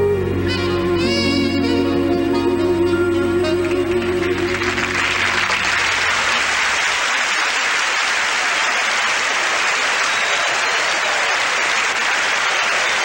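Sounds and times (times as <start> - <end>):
song notes: 0.0 - 6.7
audience applauding: 3.4 - 13.0.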